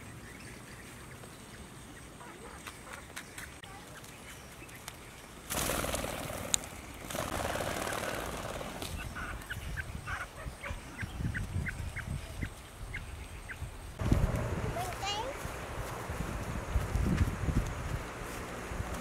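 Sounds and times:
wing fluttering: 2.3s - 9.6s
quail chicks peeping: 6.9s - 13.7s.

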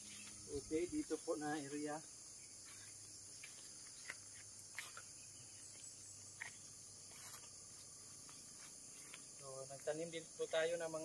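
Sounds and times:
high insect chorus: 0.0s - 11.0s.

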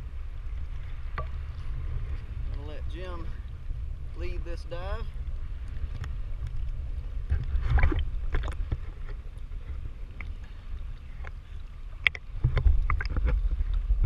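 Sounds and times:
underwater low rumble: 0.0s - 14.0s
clicks and crackles: 5.6s - 14.0s.

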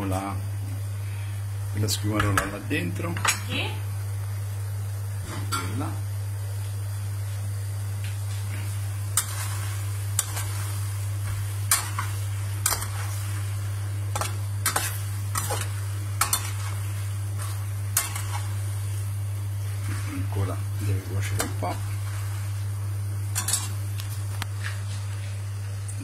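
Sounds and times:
pasta simmering sizzle: 6.1s - 26.0s
metal skimmer scraping a pan: 17.4s - 18.6s, 23.3s - 23.8s.

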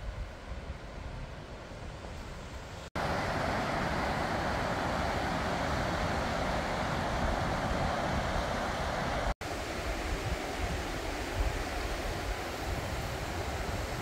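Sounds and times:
wind rumbling on microphone: 0.0s - 14.0s
river rushing over rocks: 3.0s - 14.0s.

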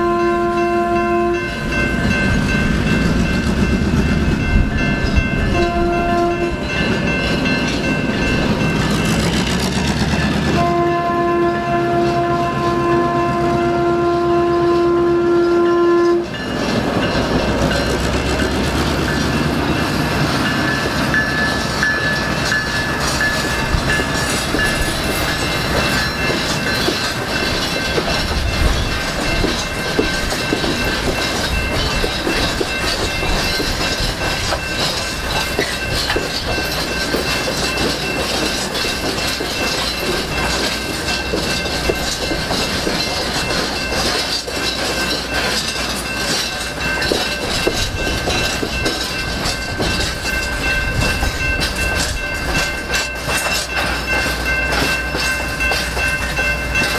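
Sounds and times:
locomotive horn: 0.0s - 1.7s, 5.5s - 6.7s, 10.5s - 16.4s
crossing signal bell ringing: 0.0s - 56.9s
train wheels clacking on rails: 0.0s - 56.9s.

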